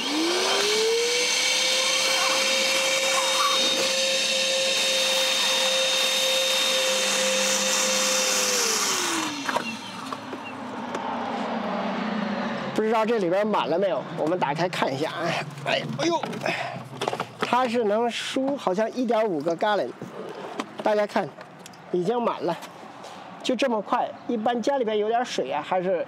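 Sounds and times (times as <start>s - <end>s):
wet vacuum motor whine: 0.0s - 10.7s.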